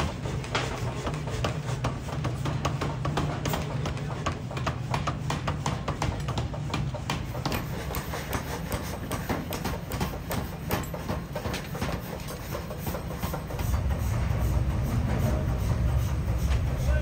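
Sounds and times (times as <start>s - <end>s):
power hammer striking hot steel: 0.0s - 17.0s
low machine rumble: 12.6s - 17.0s.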